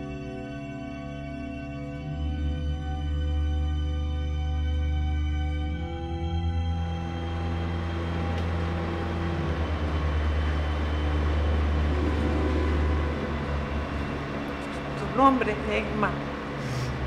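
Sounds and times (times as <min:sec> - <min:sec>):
low drone: 0:00.0 - 0:17.0
street traffic noise: 0:06.4 - 0:17.0.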